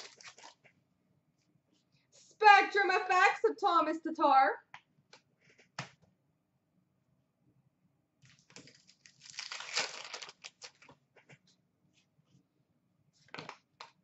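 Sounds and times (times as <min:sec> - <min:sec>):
card pack crinkling: 0:00.0 - 0:00.6, 0:08.2 - 0:11.0.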